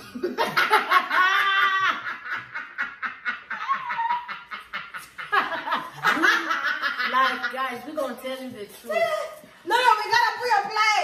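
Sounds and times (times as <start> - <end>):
women laughing with squeals: 0.0 - 7.6.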